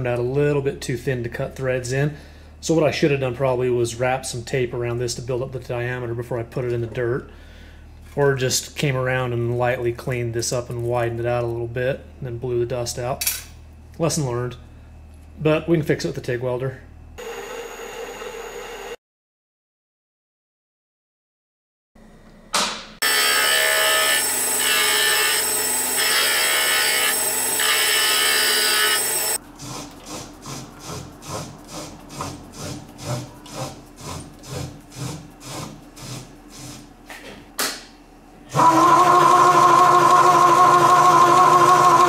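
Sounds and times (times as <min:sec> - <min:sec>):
lathe cutting metal hissing: 0:23.0 - 0:29.4
rhythmic lathe pulses: 0:23.0 - 0:35.8, 0:38.5 - 0:42.0
knurling tool humming: 0:23.0 - 0:36.9, 0:38.5 - 0:42.0.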